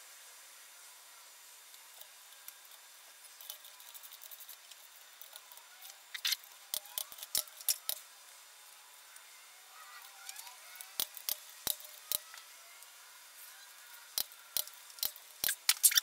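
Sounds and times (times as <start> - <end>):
ratchet wrench clicking: 3.4 - 8.0, 10.0 - 12.5, 13.8 - 16.0.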